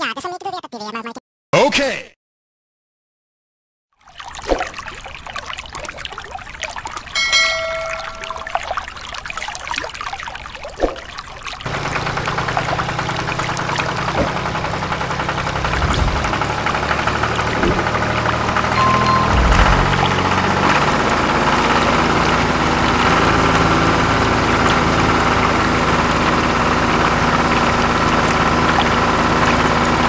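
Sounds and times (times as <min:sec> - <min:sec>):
water pouring and splashing: 0:04.0 - 0:20.8, 0:22.0 - 0:30.0
brief ringing tone: 0:07.2 - 0:08.8, 0:18.8 - 0:20.4.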